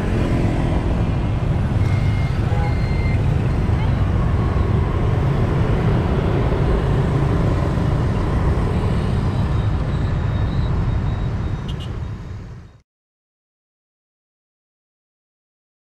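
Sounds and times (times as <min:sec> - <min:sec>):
motorbikes and scooters passing: 0:00.0 - 0:12.5
cars passing: 0:00.0 - 0:12.7.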